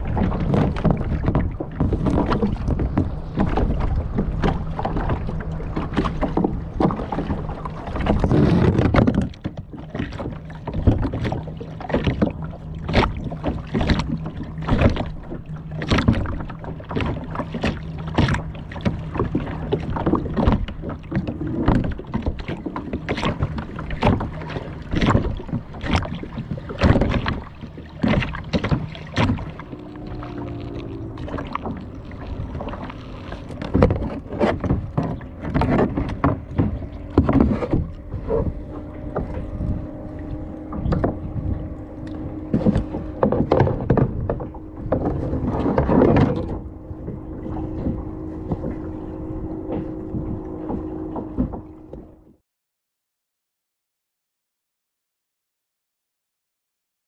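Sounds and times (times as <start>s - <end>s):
water splashing against kayak hull: 0.0s - 52.4s
steady low hum: 27.4s - 45.8s.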